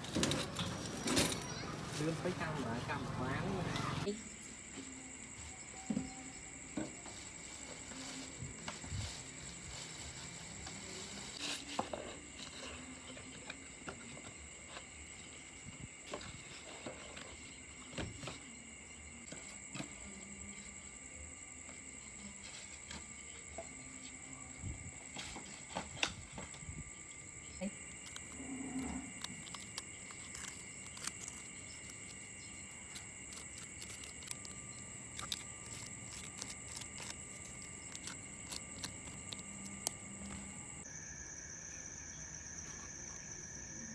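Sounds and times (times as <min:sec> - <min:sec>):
high-pitched insect chirping: 0:17.2 - 0:43.9
plastic bag crinkling: 0:27.9 - 0:40.1.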